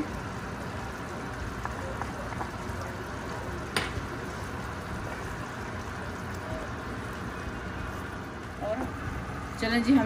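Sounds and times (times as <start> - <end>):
food sizzling in a frying pan: 0.0 - 10.0.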